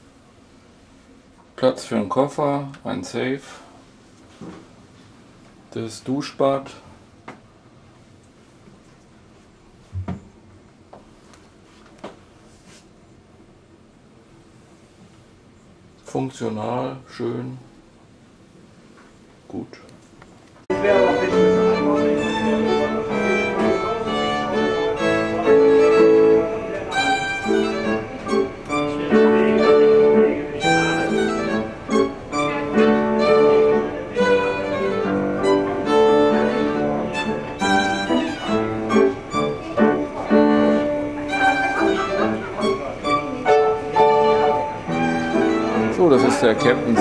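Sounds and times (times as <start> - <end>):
piano chords: 20.7 - 47.0
violin melody: 20.7 - 47.0.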